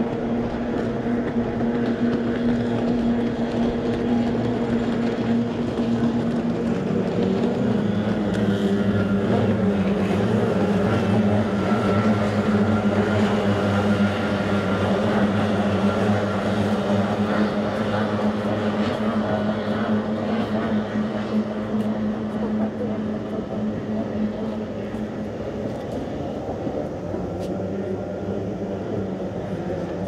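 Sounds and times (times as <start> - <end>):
outboard boat engines droning: 0.0 - 30.0.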